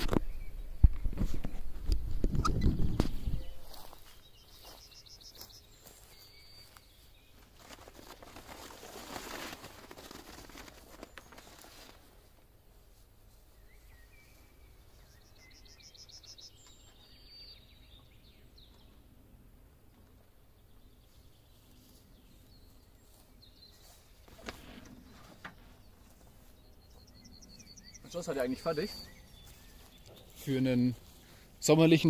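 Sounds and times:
birds chirping: 0.0 - 8.7, 9.7 - 32.0
canvas rustling: 7.0 - 13.4.

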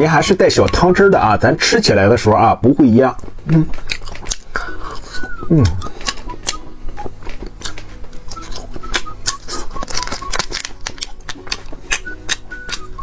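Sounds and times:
plastic packet crinkling and tearing: 3.3 - 4.6, 7.2 - 12.9.

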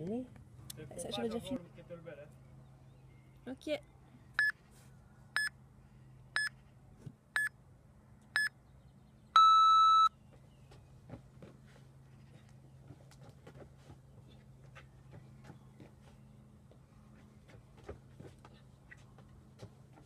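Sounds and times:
long low beep: 9.4 - 10.1
short high beeps: 9.4 - 10.1.

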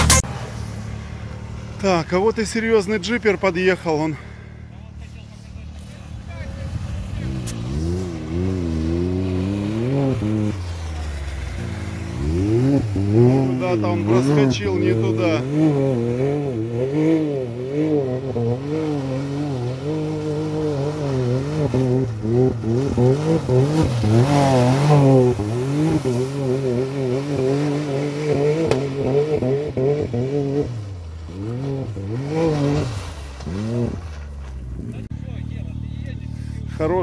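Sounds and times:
engine revving: 0.0 - 4.6, 5.7 - 37.0
tyres throwing dirt hiss: 32.2 - 34.7.

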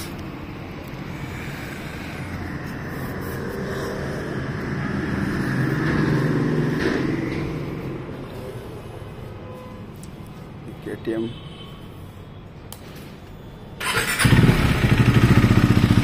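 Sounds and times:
motorcycle engine running: 13.9 - 16.0.

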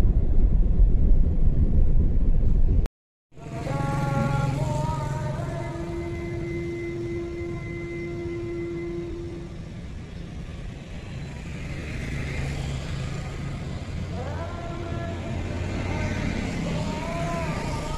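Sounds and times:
road traffic: 3.3 - 17.9
motorcycle engines accelerating: 3.4 - 9.3, 10.6 - 17.9.

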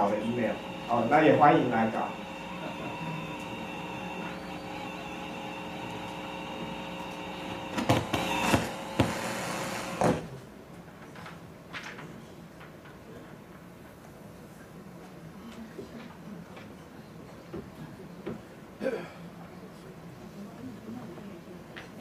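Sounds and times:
steady multi-tone hum: 0.0 - 11.0.

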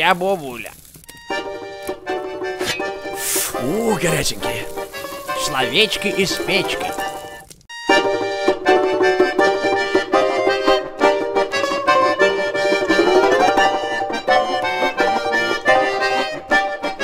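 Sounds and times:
instrumental music with quick chords: 7.7 - 17.0.

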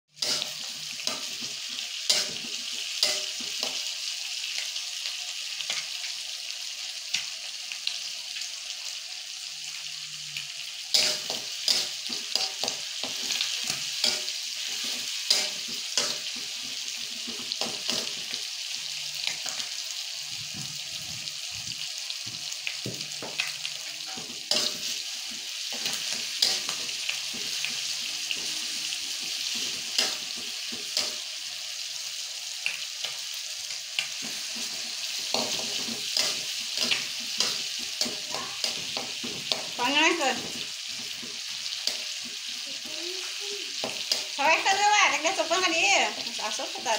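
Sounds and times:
spatula scraping a wok: 0.1 - 3.8
fish sizzling in hot oil: 0.1 - 46.9.

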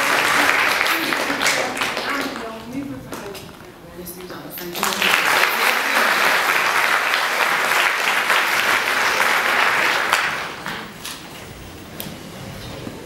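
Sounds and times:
audience applauding: 0.0 - 2.7, 4.6 - 11.3.

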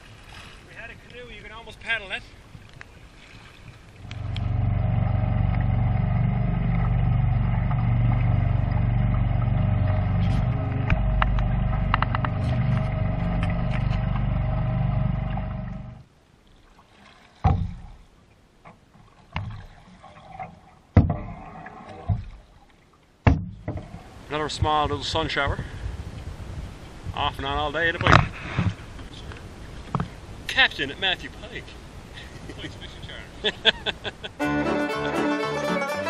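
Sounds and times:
outboard motor droning: 3.2 - 16.1
paddle knocking against canoe: 5.5 - 14.3, 17.3 - 19.7, 20.9 - 21.4, 22.0 - 22.5, 23.2 - 25.7.

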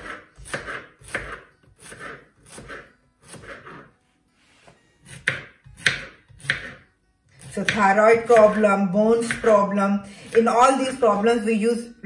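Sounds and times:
knife slicing on cutting board: 0.0 - 3.9, 5.0 - 6.8.

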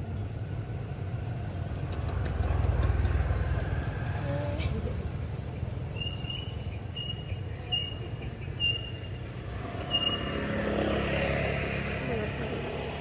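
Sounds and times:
bird chirping: 4.8 - 11.2.

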